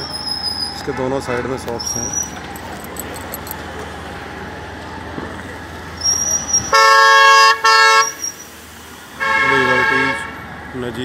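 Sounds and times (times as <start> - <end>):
traffic and road noise: 0.0 - 11.0
vehicle horn honking: 6.7 - 8.4, 9.2 - 10.4.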